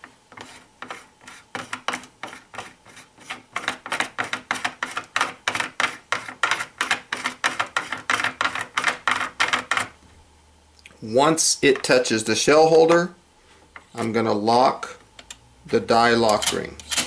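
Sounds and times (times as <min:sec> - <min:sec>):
metal threads clicking and scraping: 0:16.2 - 0:17.0.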